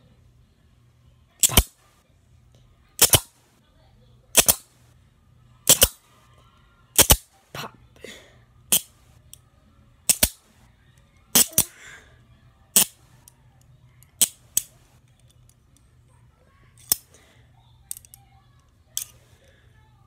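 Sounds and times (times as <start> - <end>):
handcuffs ratchet clicking: 1.4 - 1.8, 3.0 - 3.3, 4.4 - 4.6, 5.7 - 6.0, 7.0 - 7.3, 8.7 - 8.9, 10.1 - 10.4, 11.3 - 11.7, 12.8 - 13.4, 14.0 - 15.6, 16.8 - 17.1, 17.9 - 18.2, 19.0 - 19.2.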